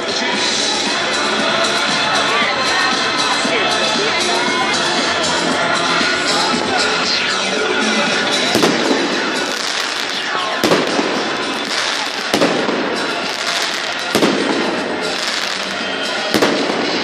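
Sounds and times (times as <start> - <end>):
fireworks crackling: 8.2 - 17.0
fireworks bangs: 8.5 - 17.0.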